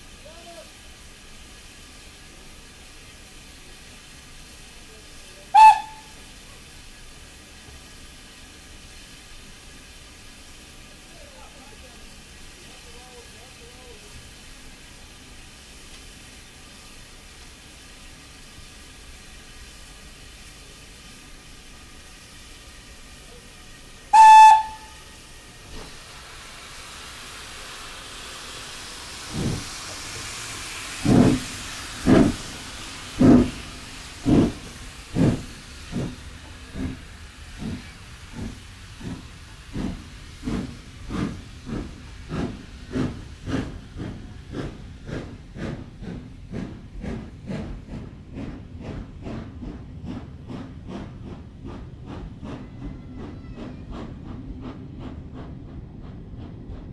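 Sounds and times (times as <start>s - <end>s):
steam hissing: 0.0s - 56.9s
locomotive exhaust chuffs: 0.1s - 11.1s, 12.0s - 56.9s
steam locomotive whistle: 5.5s - 6.2s, 24.1s - 25.2s.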